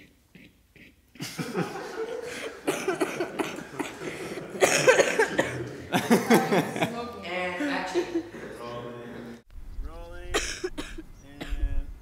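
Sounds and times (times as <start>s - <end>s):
young people laughing: 1.2s - 9.3s.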